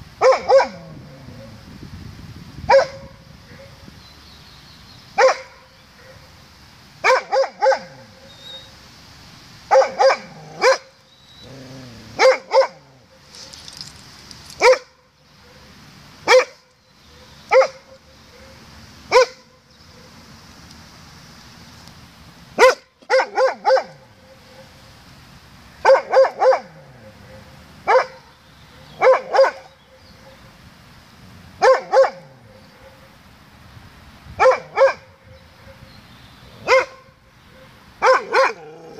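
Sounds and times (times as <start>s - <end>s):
bark echoes: 0.2s - 0.8s, 2.7s - 3.8s, 5.2s - 6.3s, 7.0s - 7.9s, 9.7s - 10.9s, 12.2s - 12.8s, 16.3s - 16.6s, 17.5s - 19.5s, 22.6s - 24.7s, 25.8s - 28.2s, 28.8s - 30.4s, 31.6s - 33.1s, 34.4s - 35.8s, 36.6s - 38.7s
dog barking: 0.2s - 0.8s, 2.7s - 3.8s, 5.2s - 6.3s, 7.0s - 8.0s, 9.7s - 10.9s, 12.2s - 12.8s, 14.6s - 15.7s, 16.3s - 16.6s, 17.2s - 20.2s, 22.6s - 24.7s, 25.8s - 30.5s, 31.6s - 33.1s, 34.4s - 35.9s, 36.6s - 38.7s.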